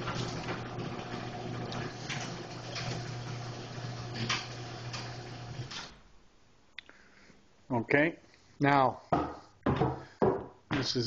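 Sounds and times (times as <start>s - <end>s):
garage door opener motor hum: 0.0s - 6.1s.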